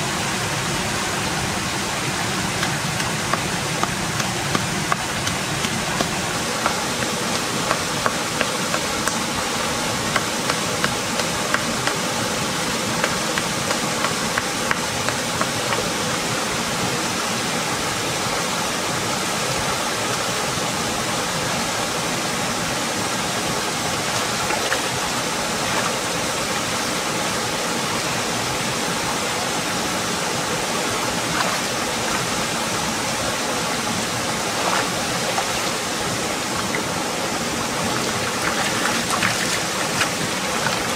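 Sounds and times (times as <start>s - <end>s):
waterfall pouring into stream: 0.0s - 40.9s
short water splashes: 37.8s - 40.9s.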